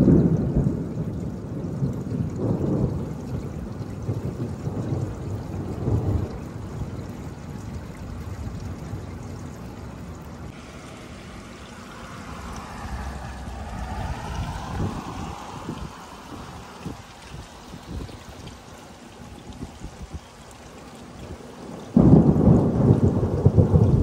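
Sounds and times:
rolling thunder: 0.0s - 9.5s, 10.5s - 18.5s, 21.6s - 24.0s
rain: 0.0s - 24.0s.

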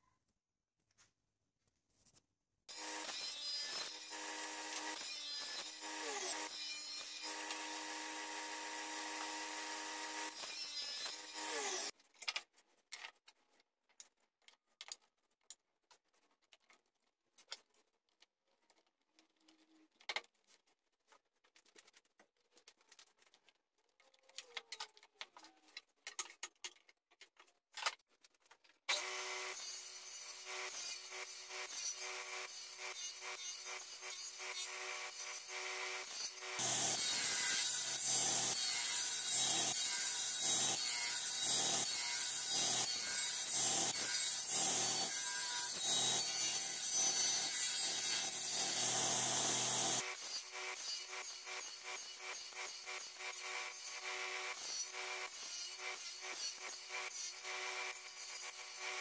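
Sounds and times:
table saw running: 2.7s - 11.9s, 34.5s - 50.2s
saw blade cutting wood: 2.7s - 12.0s, 28.9s - 59.0s.

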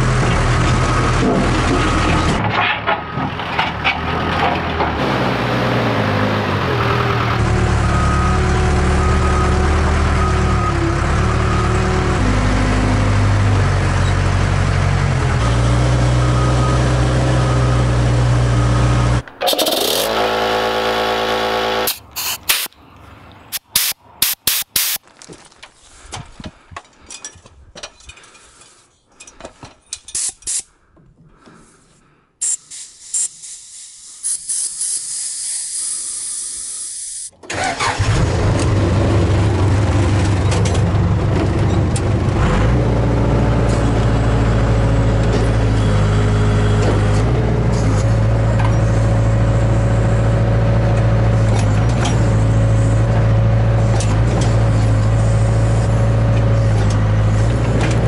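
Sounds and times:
backhoe diesel engine revving: 0.0s - 22.7s, 37.4s - 58.0s.

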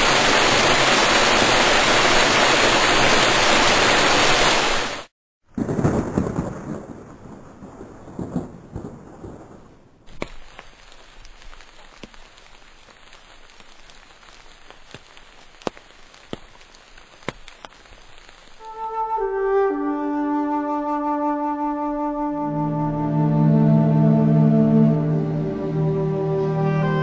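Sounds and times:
rain: 0.0s - 27.0s
thunder rolling: 5.6s - 10.0s
raindrops tapping: 10.1s - 18.3s.

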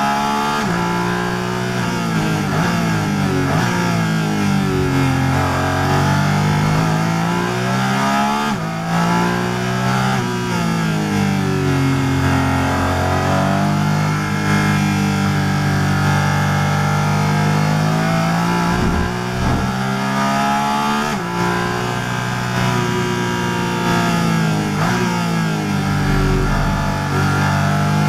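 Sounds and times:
racing engine accelerating: 0.1s - 28.0s.

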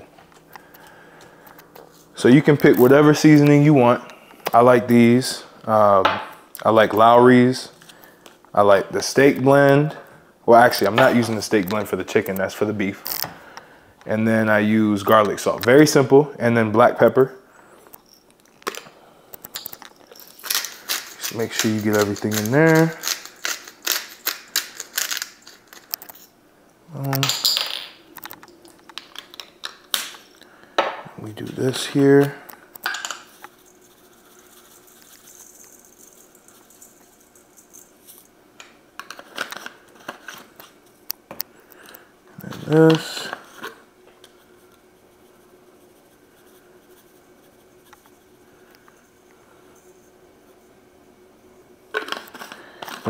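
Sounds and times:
faint steady hum: 0.0s - 53.0s
seasoning containers clicking and rattling: 19.5s - 26.2s
scratchy rustling of seasoning: 20.4s - 26.1s, 33.3s - 38.3s.

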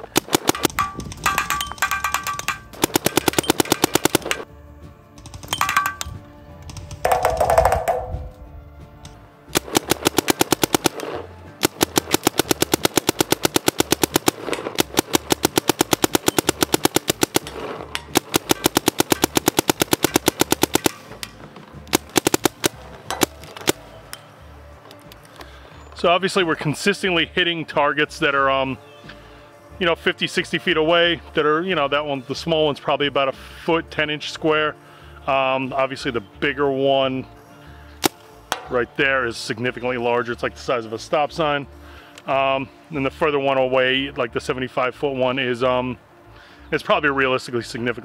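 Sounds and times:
paintball marker firing rapidly: 0.0s - 4.5s, 9.5s - 21.2s, 21.9s - 23.8s.

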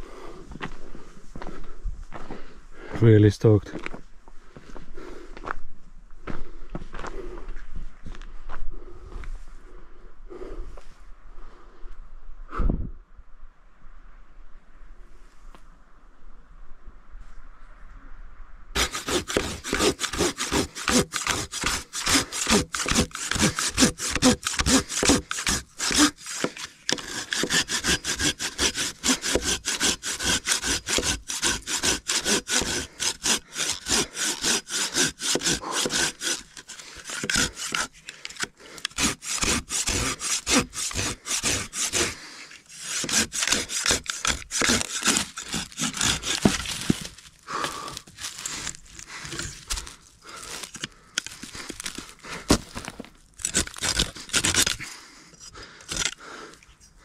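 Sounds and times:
hand saw cutting wood: 18.8s - 56.6s.

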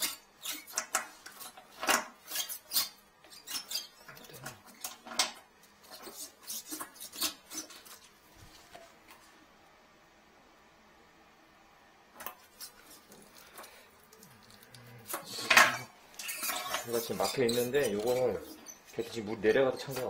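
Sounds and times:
hard objects clattering: 13.0s - 19.2s.

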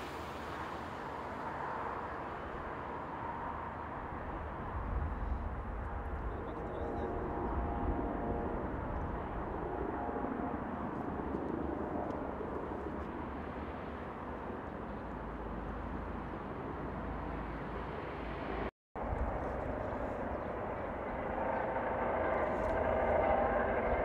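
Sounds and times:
helicopter flying past: 5.6s - 24.0s.

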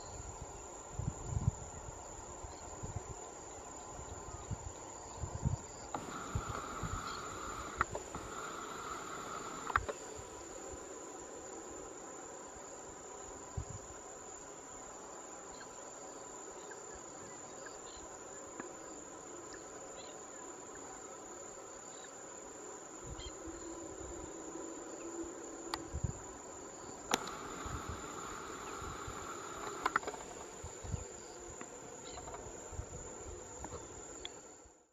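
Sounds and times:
insects trilling: 0.0s - 34.9s.

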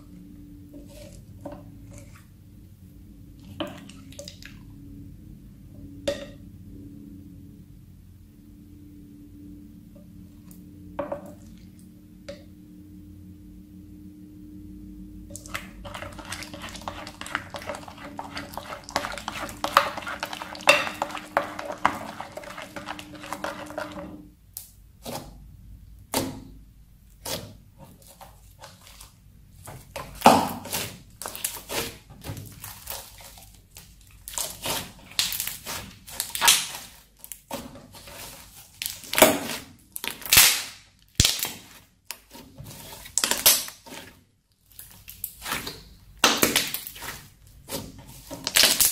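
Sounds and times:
low steady hum: 0.0s - 48.9s
slime crackling in bowl: 15.3s - 25.4s, 27.1s - 48.9s.

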